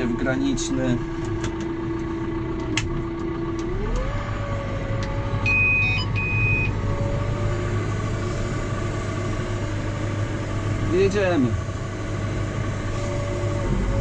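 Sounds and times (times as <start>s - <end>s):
tractor engine revving: 0.0s - 14.0s
short electronic beeps: 5.4s - 6.8s.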